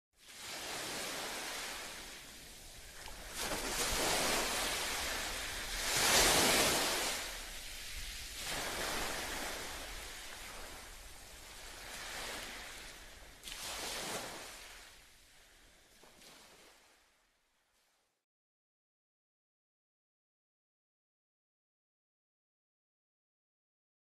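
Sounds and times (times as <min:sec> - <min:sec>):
waves washing onto sandy beach: 0:00.2 - 0:17.0.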